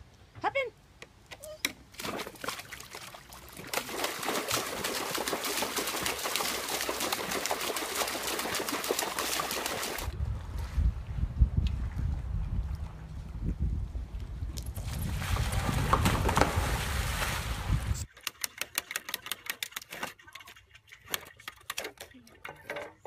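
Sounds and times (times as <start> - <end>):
dog splashing in water: 2.0 - 10.1.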